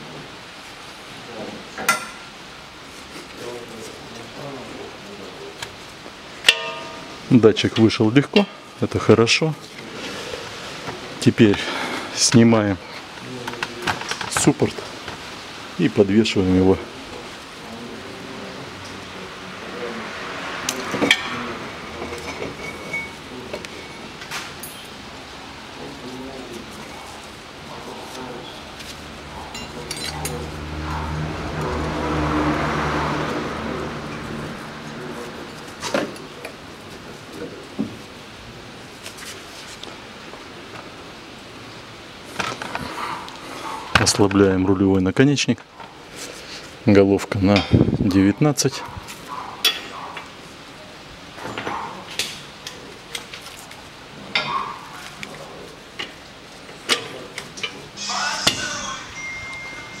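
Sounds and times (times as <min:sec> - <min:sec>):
vehicle engine humming: 0:17.2 - 0:22.8, 0:27.3 - 0:37.3.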